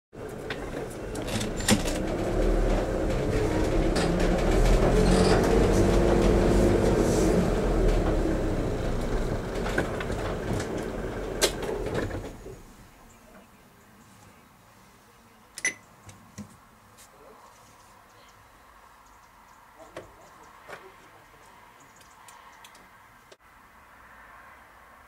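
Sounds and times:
train passing rumble: 0.2s - 12.8s.

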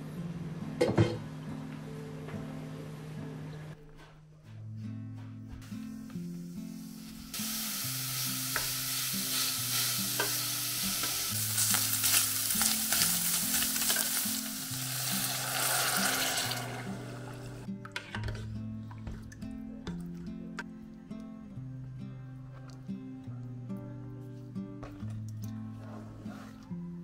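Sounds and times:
meat sizzling in a pot: 6.1s - 17.7s.

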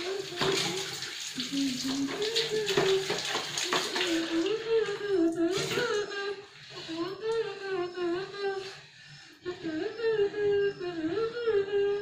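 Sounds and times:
child singing: 0.0s - 8.8s.

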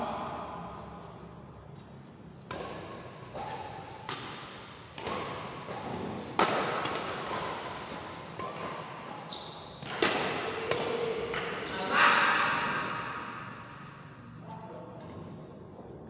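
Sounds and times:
rackets striking shuttlecock: 2.4s - 11.7s.

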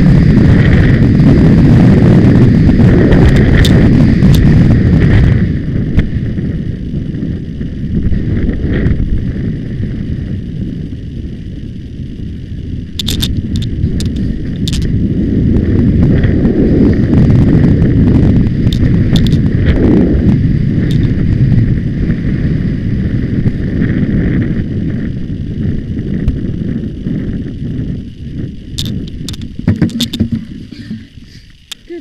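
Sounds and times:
wind on microphone: 0.0s - 32.0s
sharp clicks: 12.9s - 14.9s, 28.8s - 30.5s
horse hoofbeats galloping: 29.6s - 31.1s.

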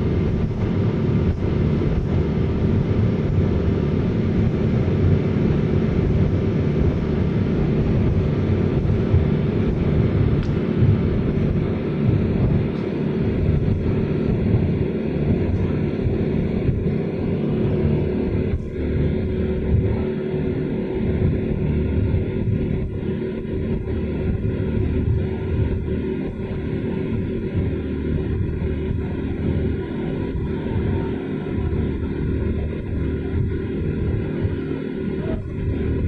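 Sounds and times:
wind buffeting microphone: 0.0s - 20.4s
outboard motors running: 0.0s - 36.0s.

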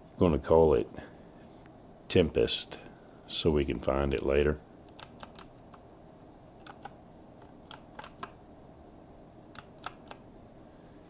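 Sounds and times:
keyboard key clicks: 4.9s - 5.8s, 6.6s - 7.0s, 7.6s - 8.4s, 9.6s - 10.2s.

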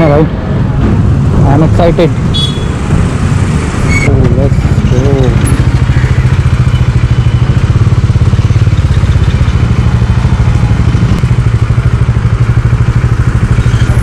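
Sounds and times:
motorcycle engine running at low revs: 3.4s - 14.0s.

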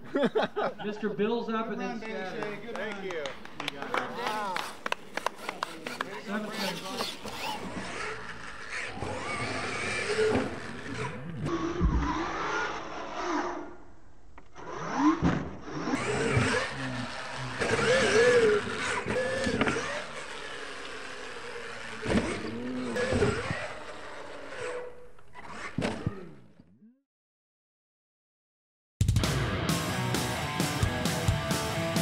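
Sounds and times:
rc truck motor revving: 4.2s - 13.8s, 14.4s - 26.6s.

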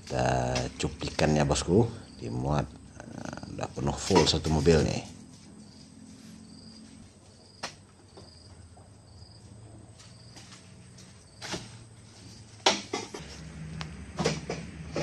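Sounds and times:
insects chirping: 0.0s - 15.0s
fruit bunches thudding on truck bed: 3.8s - 4.7s.

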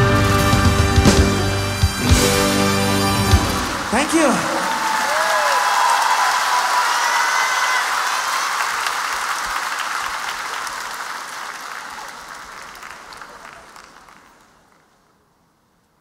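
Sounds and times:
audience applauding: 0.0s - 15.1s.

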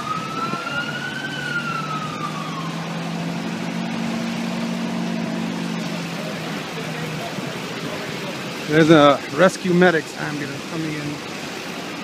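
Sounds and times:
emergency vehicle siren: 0.0s - 9.5s
street traffic noise: 0.0s - 12.0s.

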